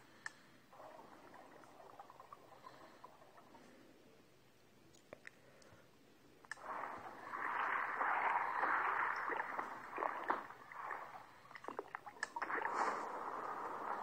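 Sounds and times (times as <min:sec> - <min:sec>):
underwater bubbling and gurgling: 0:00.7 - 0:03.9, 0:06.6 - 0:14.0.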